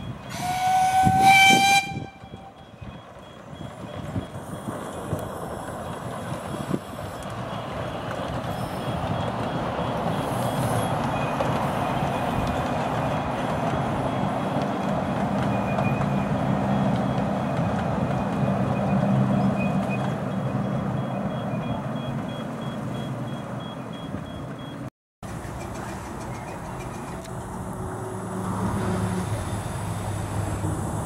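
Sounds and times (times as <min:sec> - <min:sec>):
train rumbling on track: 0:00.0 - 0:31.0
steam locomotive whistle: 0:00.3 - 0:02.6.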